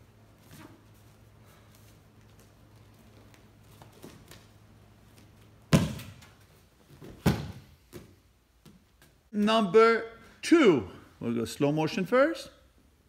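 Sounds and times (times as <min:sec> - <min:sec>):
heavy thuds on gym mats: 0:07.0 - 0:08.1.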